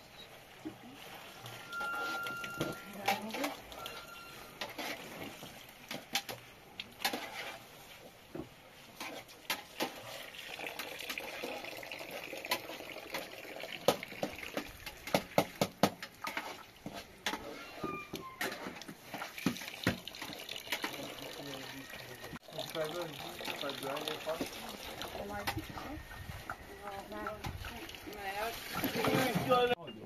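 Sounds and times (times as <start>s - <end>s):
water running from tap: 10.3s - 14.7s, 19.4s - 25.4s
ladle scraping and knocking pot: 16.0s - 19.6s.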